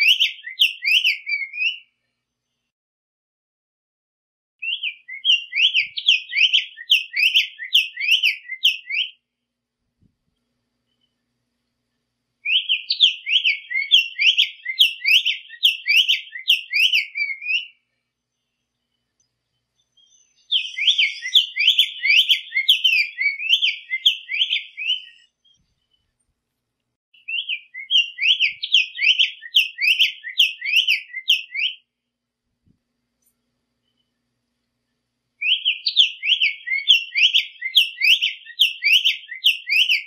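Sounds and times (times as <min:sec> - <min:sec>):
bird singing whistled notes: 0:00.0 - 0:01.9, 0:04.6 - 0:09.2, 0:12.4 - 0:17.9, 0:18.9 - 0:25.7, 0:27.2 - 0:31.9, 0:35.4 - 0:40.0.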